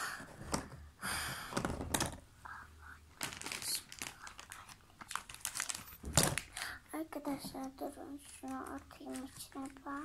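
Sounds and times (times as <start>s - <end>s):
plastic bag crinkling: 2.8s - 10.0s.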